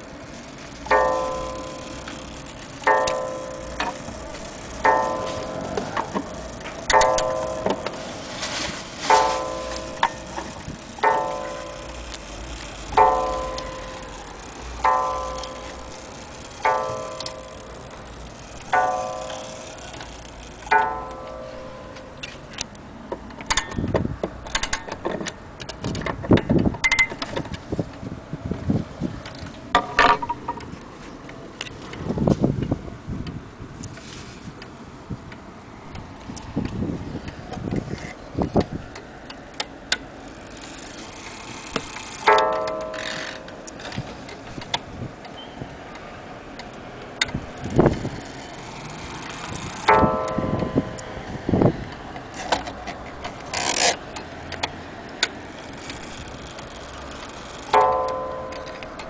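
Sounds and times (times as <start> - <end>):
clock handling clicks and knocks: 0.8 - 8.0, 9.2 - 27.6, 41.7 - 48.4, 49.0 - 51.1, 51.9 - 59.0
wall clock striking: 2.8 - 4.1, 4.8 - 7.9, 9.2 - 12.3, 12.9 - 18.0, 18.7 - 19.7, 20.7 - 22.2, 42.3 - 43.5, 49.9 - 51.0, 57.7 - 59.0.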